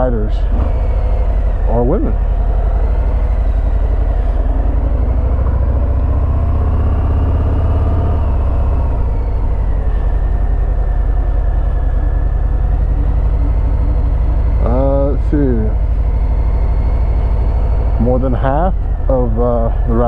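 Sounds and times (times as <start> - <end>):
motorcycle engine rumbling: 0.0 - 20.0.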